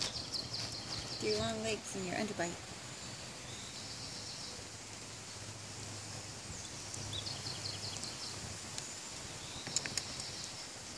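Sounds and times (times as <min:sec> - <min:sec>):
high bird chirps: 0:00.0 - 0:01.5.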